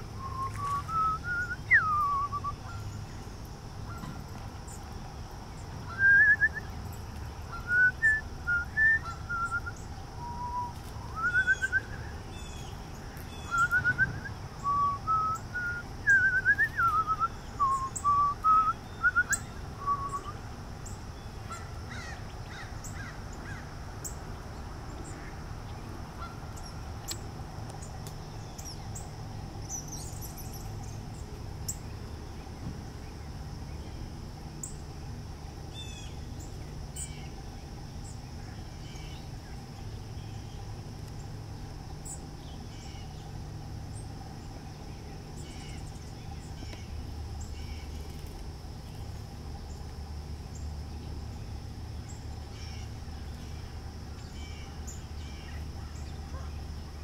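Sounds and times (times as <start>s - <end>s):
background hum: 0.0s - 57.0s
loud whistled notes: 0.2s - 2.9s, 7.6s - 12.0s, 13.5s - 20.4s.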